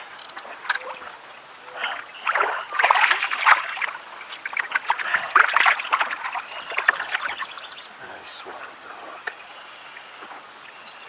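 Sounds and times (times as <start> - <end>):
fish splashing at water surface: 1.6 - 7.5.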